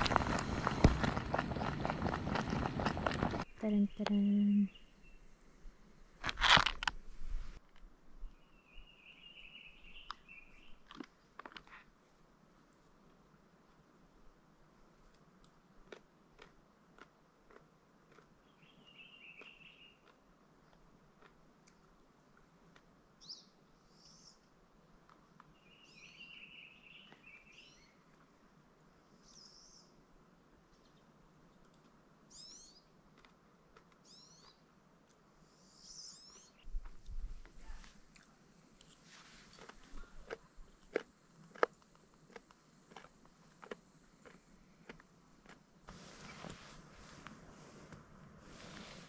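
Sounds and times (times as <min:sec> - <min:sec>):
small birds calling: 0:01.6 - 0:05.3, 0:18.4 - 0:20.1, 0:25.4 - 0:28.1, 0:32.3 - 0:33.0, 0:34.0 - 0:34.7, 0:35.5 - 0:36.7.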